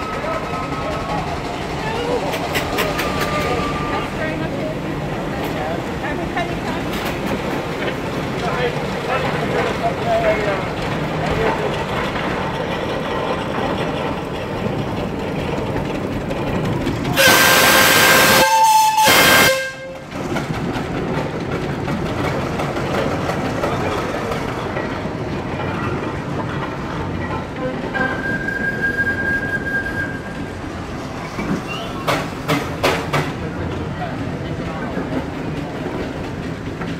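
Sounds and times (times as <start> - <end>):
steam whistle blowing: 17.2 - 20.0, 28.0 - 30.4
faint steady whistle tone: 28.0 - 30.4.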